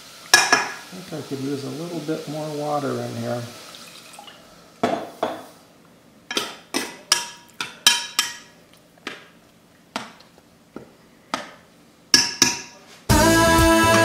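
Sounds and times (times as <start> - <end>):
spoon clinking against saucepan: 6.3 - 8.5.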